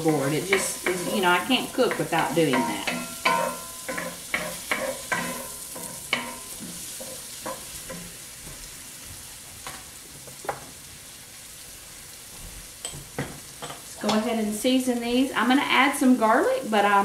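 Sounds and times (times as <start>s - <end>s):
wooden spoon scraping a pan: 0.0s - 10.8s
potatoes sizzling in a skillet: 0.0s - 17.0s.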